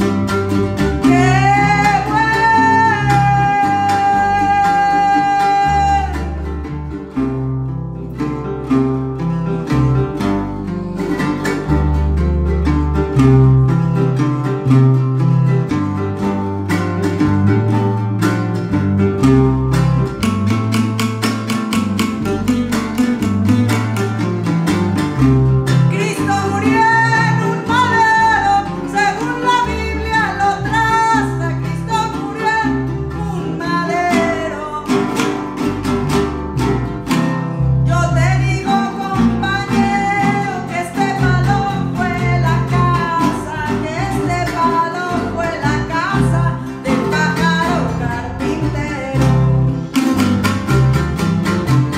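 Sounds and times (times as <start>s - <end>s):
woman singing: 0.0s - 7.0s, 25.7s - 35.8s, 37.6s - 50.9s
electric bass line: 0.0s - 51.9s
strummed guitars: 0.0s - 51.9s.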